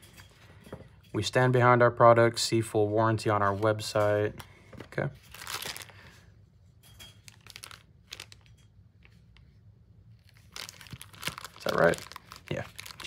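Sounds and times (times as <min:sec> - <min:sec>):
packaging rustling and crinkling: 0:03.3 - 0:06.2, 0:07.2 - 0:13.0.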